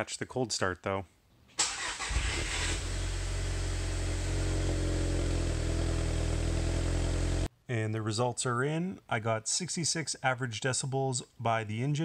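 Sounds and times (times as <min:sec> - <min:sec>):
starter motor cranking: 0:01.6 - 0:04.7
car engine cold idle: 0:02.0 - 0:07.5.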